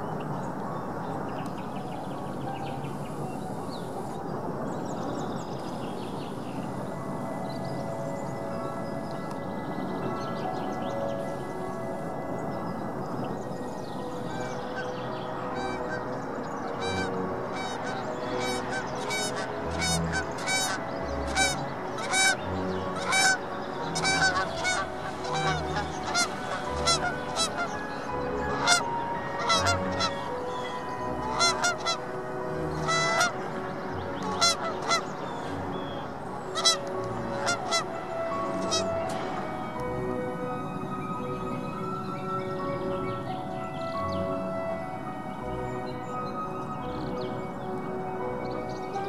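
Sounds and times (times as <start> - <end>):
background music: 0.0 - 49.0
waterfowl honking: 14.3 - 39.4.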